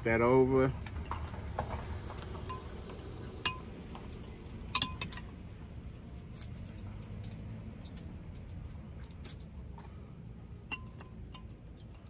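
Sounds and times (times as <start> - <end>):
metal spoon clinking glass bowl: 4.7 - 5.3.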